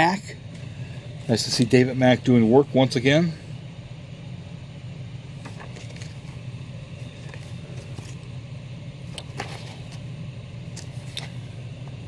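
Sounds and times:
steady low hum: 0.0 - 12.0
paper rustling: 5.4 - 6.4, 7.1 - 8.3, 9.3 - 10.0.

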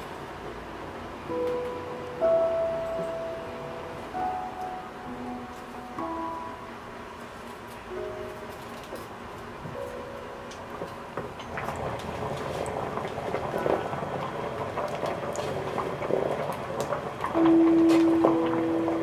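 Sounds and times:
light background music: 1.2 - 11.2, 17.3 - 19.0
stew bubbling in a pot: 11.1 - 19.0.

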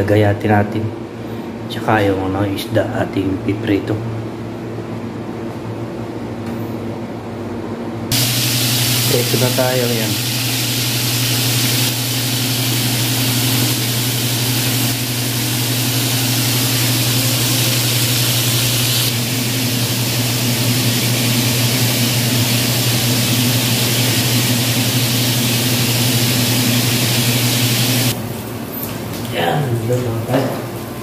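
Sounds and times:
fish sizzling in hot oil: 8.1 - 28.5.

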